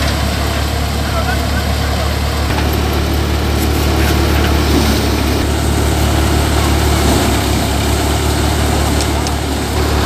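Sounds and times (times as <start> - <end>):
rushing noise of grain feeding: 0.0 - 10.0
tractor diesel engine: 0.0 - 10.0
thresher drum and blower whirring: 2.2 - 10.0.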